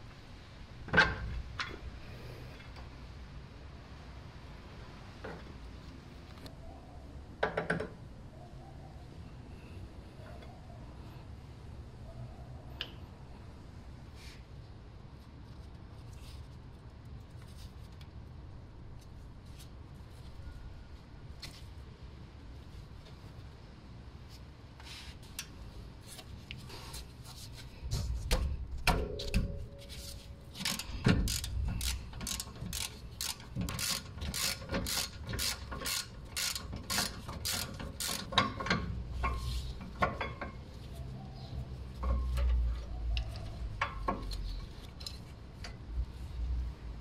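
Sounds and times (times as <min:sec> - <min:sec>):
hand ratchet clicking: 0:30.6 - 0:39.4.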